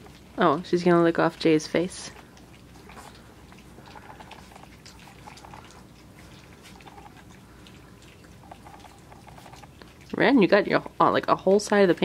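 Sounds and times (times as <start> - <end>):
puppies lapping food: 0.0 - 12.0.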